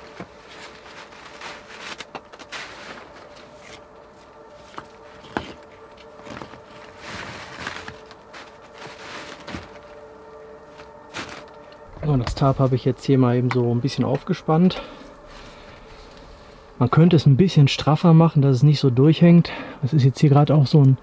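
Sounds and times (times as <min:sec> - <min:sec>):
footsteps: 0:00.0 - 0:16.6
rustling and handling tarp: 0:00.0 - 0:17.0.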